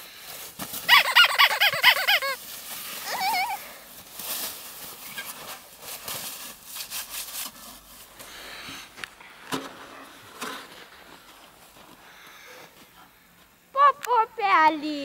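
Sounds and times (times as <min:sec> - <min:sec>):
scraping and crunching in snow: 0:02.4 - 0:08.6.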